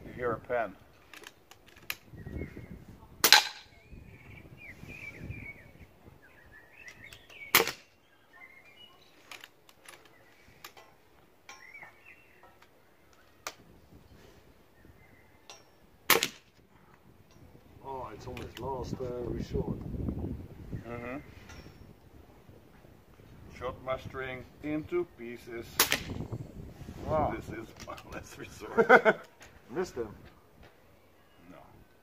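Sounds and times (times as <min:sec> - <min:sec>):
birds chirping: 0:00.0 - 0:32.0
air rifle shots: 0:03.2 - 0:03.7, 0:07.5 - 0:07.9, 0:16.1 - 0:16.6, 0:25.7 - 0:26.2.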